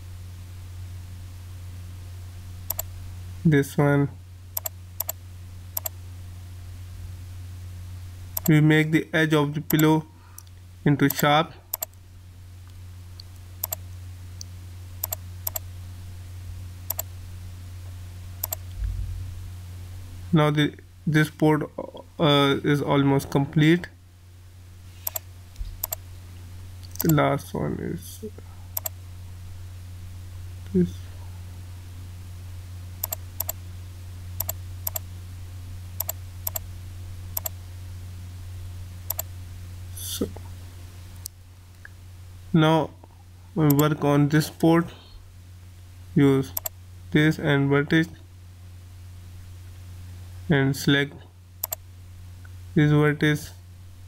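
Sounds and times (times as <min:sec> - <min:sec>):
steady low hum: 0:00.0 - 0:54.0
computer mouse clicking: 0:02.7 - 0:02.9, 0:04.6 - 0:05.2, 0:05.8 - 0:06.0, 0:11.1 - 0:12.0, 0:13.6 - 0:13.8, 0:15.0 - 0:15.6, 0:16.9 - 0:17.1, 0:18.4 - 0:18.7, 0:25.0 - 0:26.0, 0:26.8 - 0:27.2, 0:28.8 - 0:29.0, 0:33.0 - 0:33.6, 0:34.4 - 0:35.0, 0:36.0 - 0:36.6, 0:37.4 - 0:37.6, 0:39.1 - 0:39.3, 0:43.7 - 0:43.9, 0:51.6 - 0:51.8.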